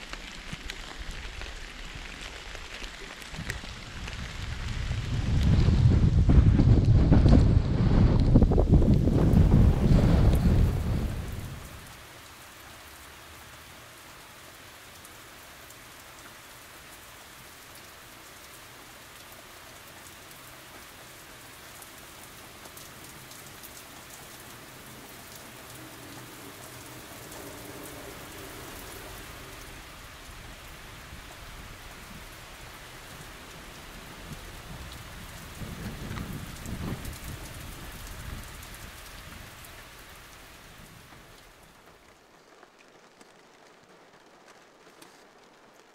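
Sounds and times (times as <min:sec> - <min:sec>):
low rumble of wind: 0:00.0 - 0:15.3, 0:16.0 - 0:45.9
steady rain falling: 0:00.0 - 0:45.9.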